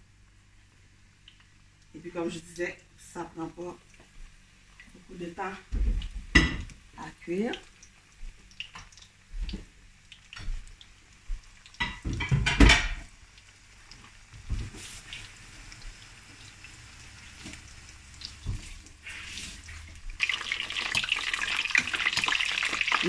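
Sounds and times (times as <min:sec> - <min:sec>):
shrimp frying in hot oil: 0:00.2 - 0:23.0
kitchenware clattering: 0:11.8 - 0:13.1.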